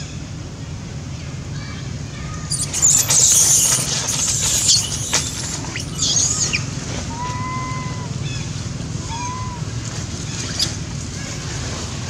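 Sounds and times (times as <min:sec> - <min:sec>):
monkey screaming shrill squeals: 0:02.5 - 0:08.1.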